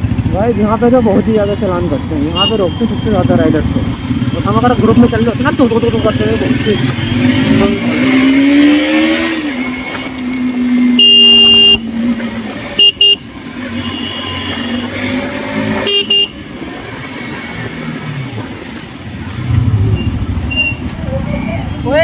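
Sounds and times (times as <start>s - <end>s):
motorcycle engine running: 0.0s - 2.0s
vehicle horn honking: 10.9s - 11.9s, 12.8s - 15.0s, 15.8s - 16.4s.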